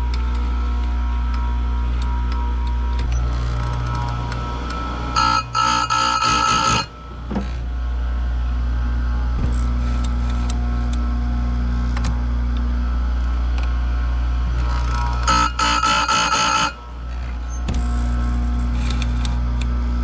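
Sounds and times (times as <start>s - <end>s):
grinder motor running: 3.0s - 20.0s
grinder wheel grinding chain: 5.2s - 6.9s.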